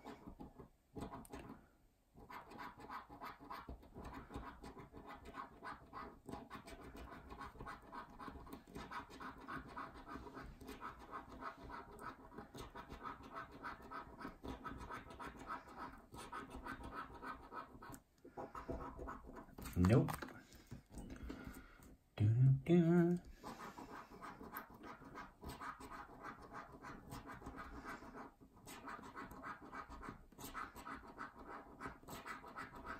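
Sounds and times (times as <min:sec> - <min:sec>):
coin scratching scratchcard: 0:02.2 - 0:20.0, 0:23.4 - 0:32.9.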